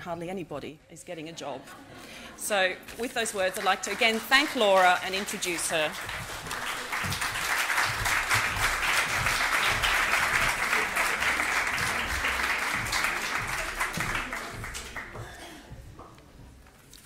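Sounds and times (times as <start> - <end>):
audience applauding: 3.2 - 15.4.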